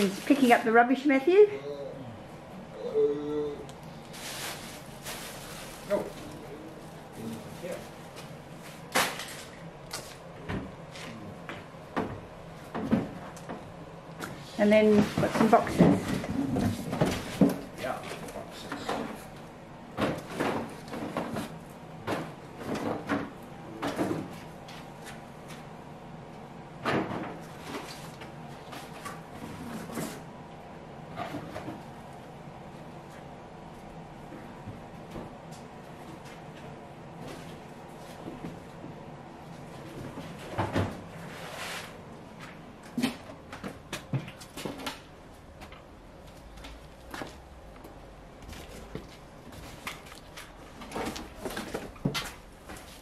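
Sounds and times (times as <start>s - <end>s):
cardboard rubbish handled: 4.1s - 8.2s.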